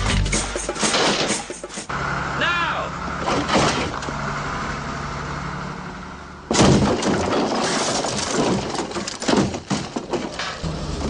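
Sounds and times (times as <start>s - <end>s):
loud crash: 0.1s - 1.9s, 6.5s - 10.8s
clattering impacts: 0.2s - 1.9s, 3.2s - 4.2s, 6.5s - 10.7s
glass breaking: 6.5s - 10.4s.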